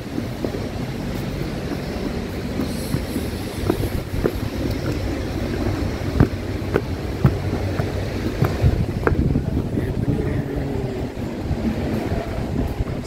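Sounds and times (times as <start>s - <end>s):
footsteps on stone stairs: 0.0s - 9.8s
steady low rumble: 0.0s - 13.0s.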